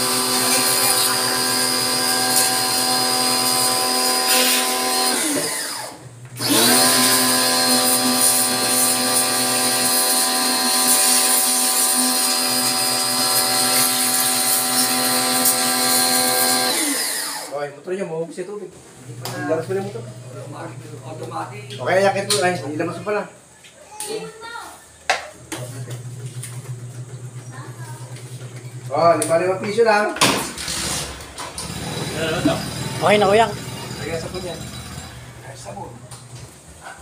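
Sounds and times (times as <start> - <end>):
pressure washer motor humming: 0.0 - 17.5, 30.4 - 36.9.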